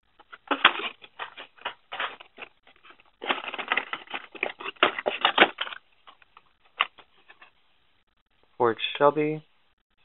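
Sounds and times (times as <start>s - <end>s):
blister card packaging rustling: 0.1s - 7.5s.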